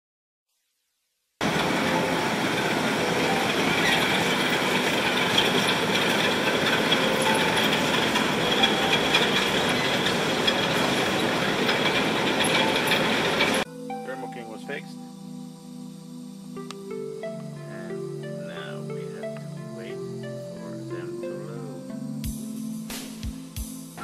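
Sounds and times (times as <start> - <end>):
conveyor mechanical rumble: 1.4 - 13.7.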